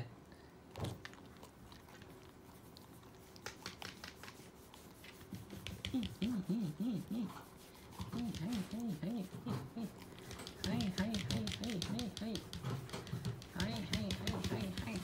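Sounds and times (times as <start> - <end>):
fingers scratching dog fur: 2.7 - 15.0
person humming short runs: 5.8 - 10.0.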